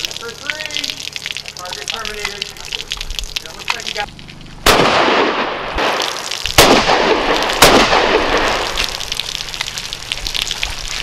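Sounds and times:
rifle shots with echo: 4.6s - 8.8s.

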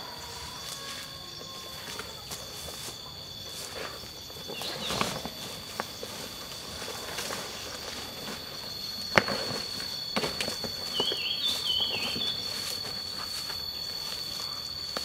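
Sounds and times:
footsteps through undergrowth: 0.0s - 15.0s
high insect drone: 0.0s - 15.0s
warbling bird call: 8.9s - 14.8s.

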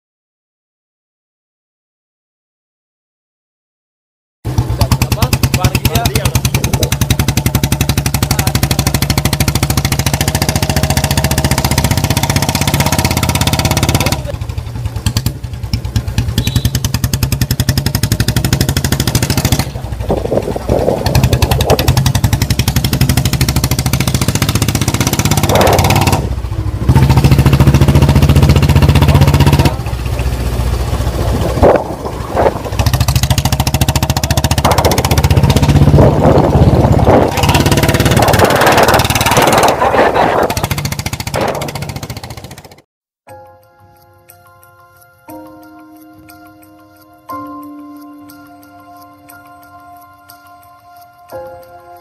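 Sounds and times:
motorcycle engine thumping: 4.5s - 42.8s.

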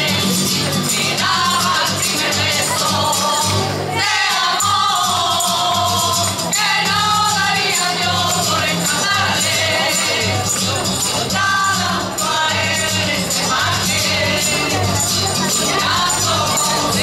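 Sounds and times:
acoustic guitar: 0.0s - 17.0s
light rhythmic percussion: 0.0s - 17.0s
women singing in chorus: 0.1s - 10.5s, 11.3s - 17.0s.

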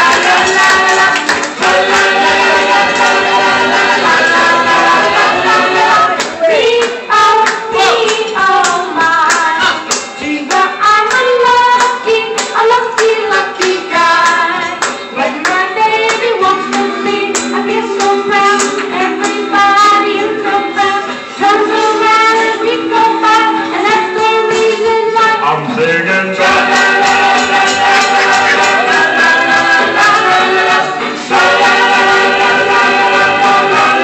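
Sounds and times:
instrumental accompaniment with beat: 0.0s - 34.0s
young man singing: 25.4s - 26.7s.

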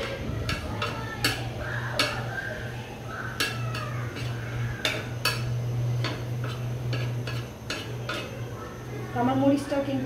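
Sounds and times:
chillies frying in oil: 0.0s - 10.0s
steady low hum: 0.0s - 10.0s
metal spatula scraping a pan: 3.3s - 8.4s.

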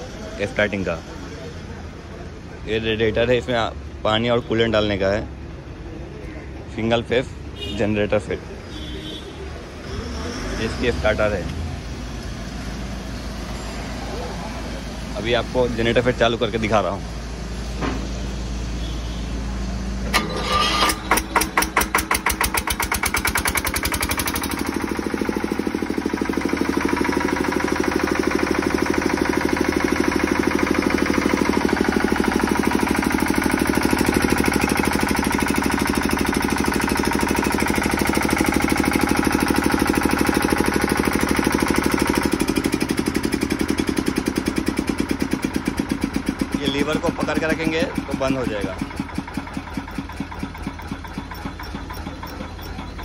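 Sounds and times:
diesel generator engine running: 0.0s - 53.0s
generator starter cranking: 20.0s - 53.0s.

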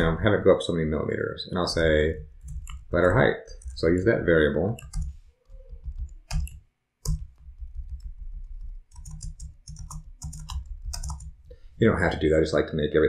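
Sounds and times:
typing on computer keyboard: 4.8s - 11.4s.

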